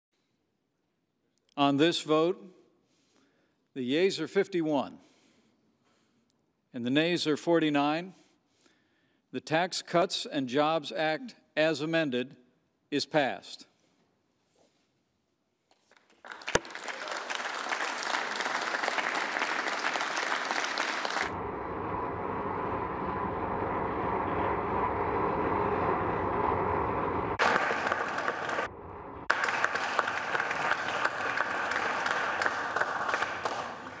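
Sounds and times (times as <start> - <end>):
crowd applauding: 15.9 - 21.4, 27.4 - 28.7, 29.3 - 34.0.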